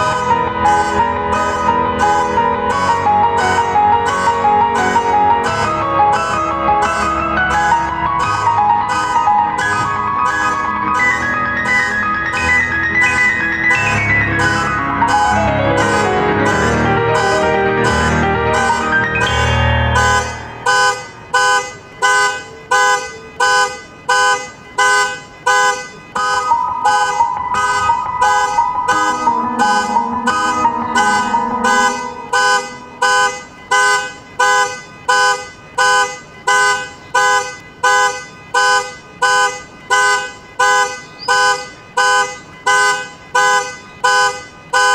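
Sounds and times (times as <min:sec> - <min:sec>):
piano chords: 0:00.0 - 0:22.2, 0:26.1 - 0:34.0
car alarm horn honking: 0:00.0 - 0:44.9.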